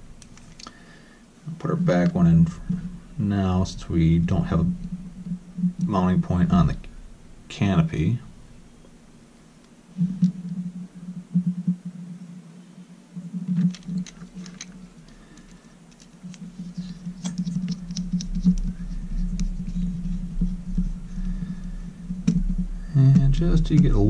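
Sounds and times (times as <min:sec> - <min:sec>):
low steady hum: 0:00.0 - 0:24.0
screwdriver clicking and scratching: 0:15.4 - 0:20.5.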